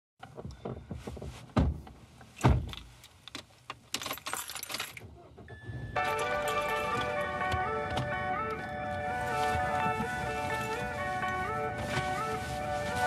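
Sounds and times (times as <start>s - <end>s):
background music: 5.6s - 13.0s.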